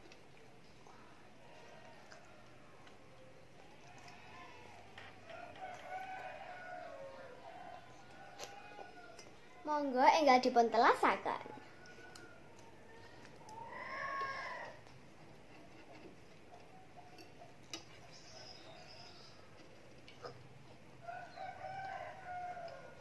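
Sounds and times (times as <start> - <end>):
distant rooster crowing: 3.8 - 9.5, 11.6 - 14.9, 21.0 - 23.0.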